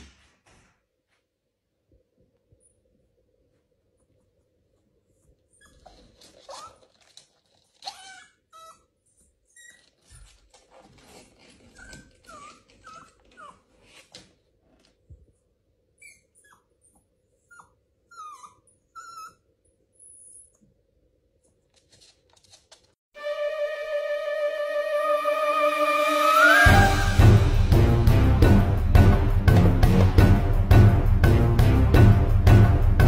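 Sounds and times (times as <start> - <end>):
puppy whimpering: 5.5 - 10.4, 11.3 - 13.9, 16.0 - 20.7.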